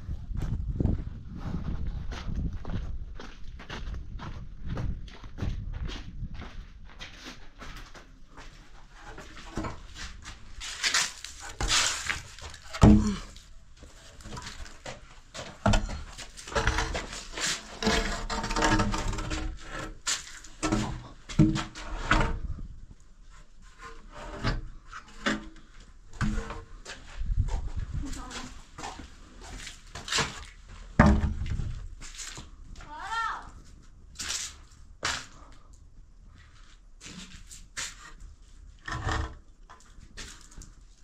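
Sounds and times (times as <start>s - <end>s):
wood knocking and scraping: 9.1s - 13.4s, 14.1s - 22.6s, 23.7s - 27.7s, 28.8s - 31.8s.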